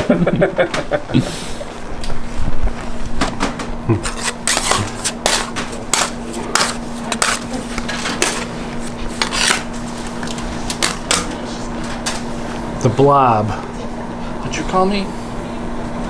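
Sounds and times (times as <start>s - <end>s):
steady low hum: 0.0s - 16.0s
scraper scraping on slab: 4.0s - 8.4s, 9.2s - 9.7s.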